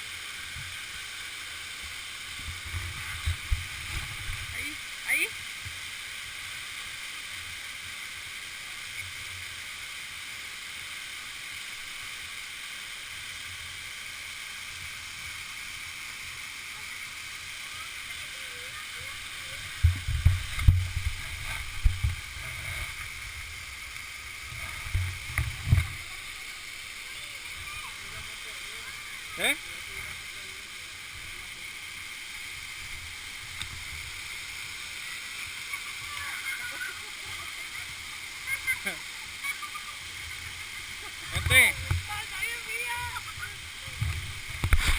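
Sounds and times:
waterfall rushing: 0.0 - 44.9.

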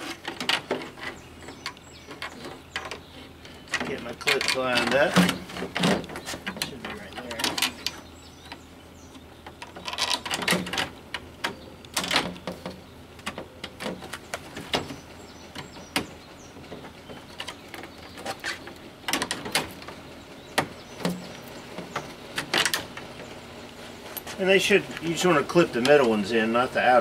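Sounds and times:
plastic parts clicking and knocking: 0.0 - 8.0.

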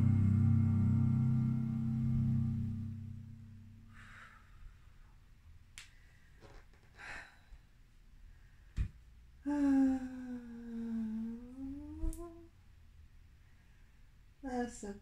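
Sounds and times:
soft breath: 3.8 - 5.1.

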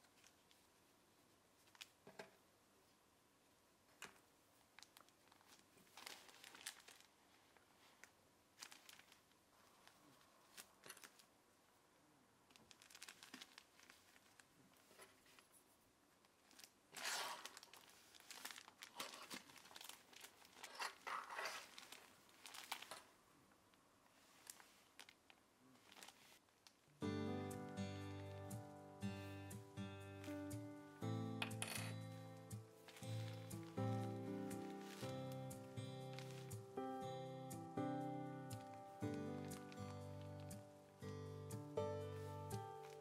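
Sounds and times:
cloth rustling and crinkling: 0.0 - 2.1, 4.1 - 11.8, 12.4 - 26.9, 32.1 - 37.0, 38.4 - 41.0, 42.0 - 43.0.

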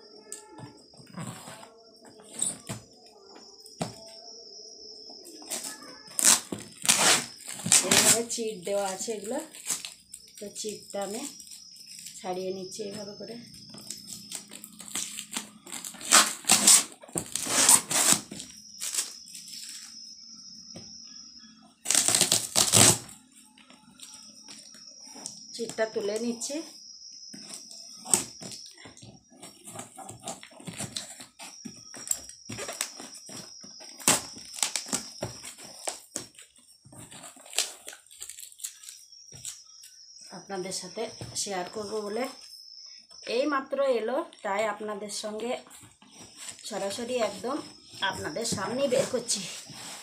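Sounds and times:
cardboard crackling and scraping: 1.0 - 2.9, 45.7 - 50.0
packing tape ripping: 6.2 - 8.2, 14.8 - 19.2, 21.9 - 23.0, 34.0 - 35.1.

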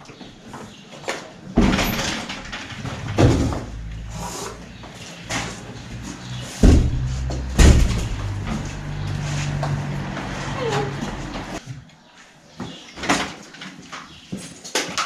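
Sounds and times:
heavy knocks and thuds: 1.6 - 3.9, 6.6 - 8.9
wooden door swinging open: 1.6 - 3.9.

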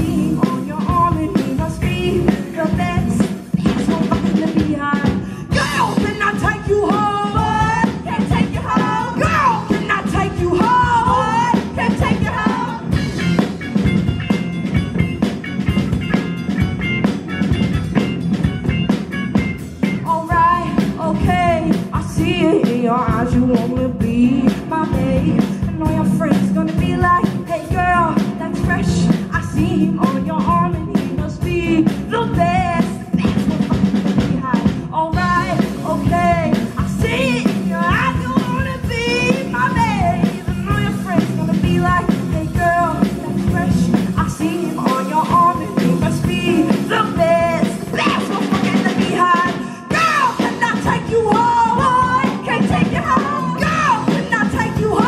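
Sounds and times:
rock band playing: 0.0 - 55.0.

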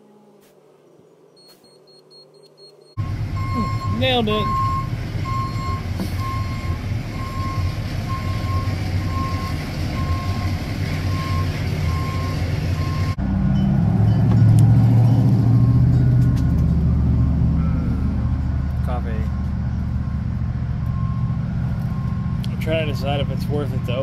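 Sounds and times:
reversing alarm beeping: 1.4 - 16.2, 19.2 - 24.0.

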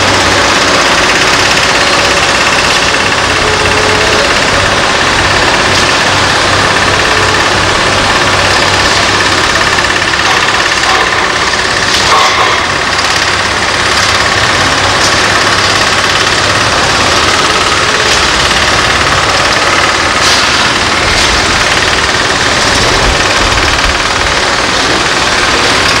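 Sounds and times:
construction machinery engine running: 0.0 - 26.0
sharp knocks: 10.1 - 13.0.

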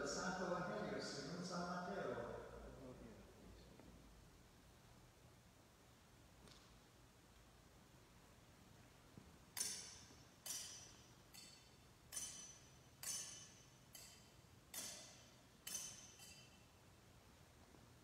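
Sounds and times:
censer chains clinking: 9.6 - 16.8.

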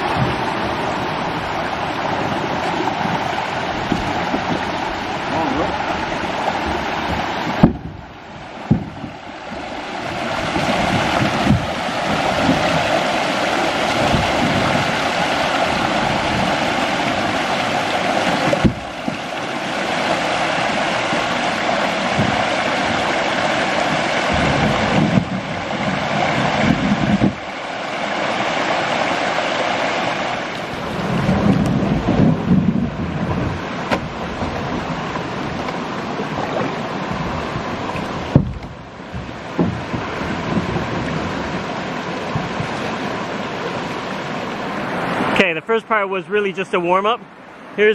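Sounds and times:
rushing whitewater: 0.0 - 47.9
sharp knocks: 7.1 - 8.0, 8.6 - 9.1, 31.5 - 34.5, 38.3 - 40.9.

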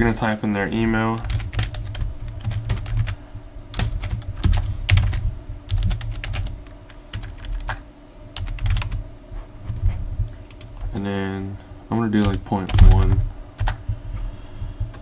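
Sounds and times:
steady low hum: 0.0 - 15.0
keyboard typing clicks: 10.3 - 10.7.

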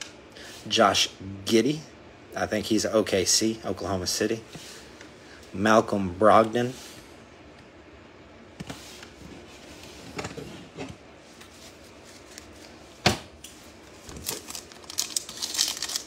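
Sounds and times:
foil pack crinkling: 14.0 - 16.0.

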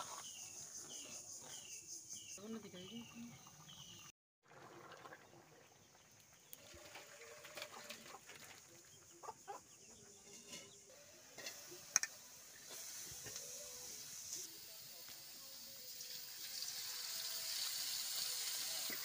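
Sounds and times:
hen clucking: 9.1 - 10.6
steady hiss: 10.9 - 19.0.

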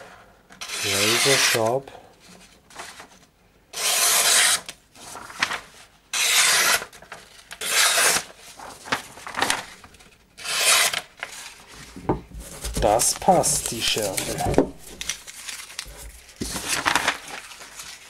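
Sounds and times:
knife slicing paper: 6.2 - 7.0, 7.6 - 9.8, 10.4 - 11.1, 12.5 - 18.0.

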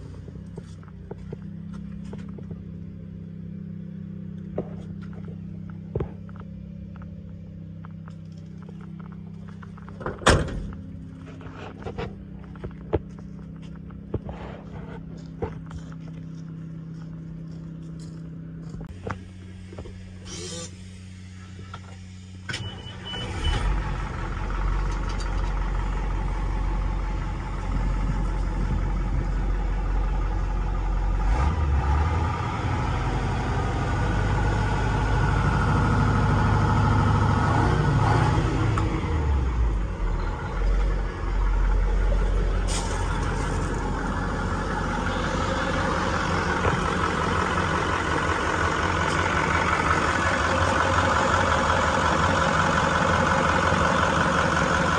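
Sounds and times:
diesel engine revving and idling: 0.0 - 54.9
short beep: 22.5 - 23.6.

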